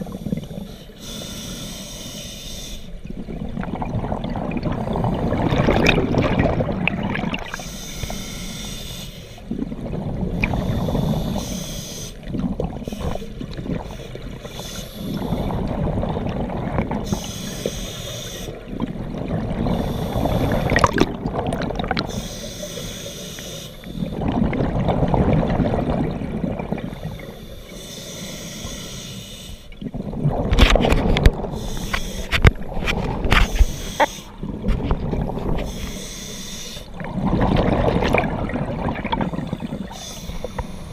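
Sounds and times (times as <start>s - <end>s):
regulator hiss on inhale: 0.0s - 3.0s, 10.4s - 12.2s, 12.9s - 15.6s, 17.0s - 18.6s, 19.7s - 20.7s, 22.1s - 24.2s, 26.9s - 29.8s, 31.5s - 32.4s, 35.4s - 36.9s, 39.4s - 40.9s
bubbles rumbling on exhale: 3.2s - 7.6s, 15.5s - 17.0s, 18.8s - 22.1s, 24.1s - 26.9s, 29.8s - 31.6s, 37.0s - 40.6s.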